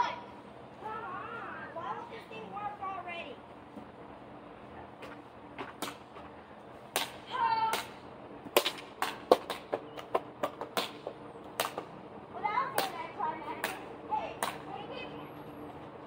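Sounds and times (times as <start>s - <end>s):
child shouting: 0.0s - 3.4s, 7.3s - 7.9s
sharp cracks and knocks: 5.0s - 6.3s, 6.9s - 11.9s, 13.6s - 14.6s.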